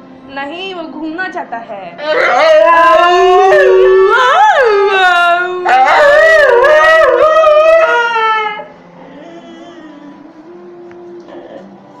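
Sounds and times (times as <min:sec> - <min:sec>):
dog whining and yowling: 0:02.0 - 0:11.7.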